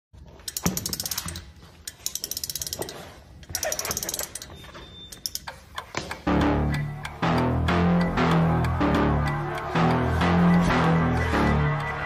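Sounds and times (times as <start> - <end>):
rapid ratchet-like clicking: 0.5 - 4.5.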